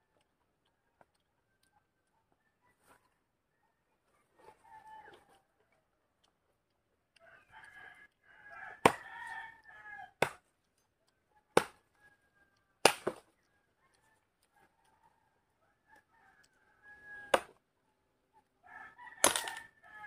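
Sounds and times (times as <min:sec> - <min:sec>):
rooster crowing: 0:04.4 - 0:05.4, 0:07.2 - 0:10.2, 0:13.9 - 0:17.5, 0:18.6 - 0:20.0
machete chopping tree stem: 0:08.8 - 0:09.1, 0:10.2 - 0:10.5, 0:11.5 - 0:11.8, 0:12.8 - 0:13.3, 0:17.3 - 0:17.6, 0:19.2 - 0:19.6.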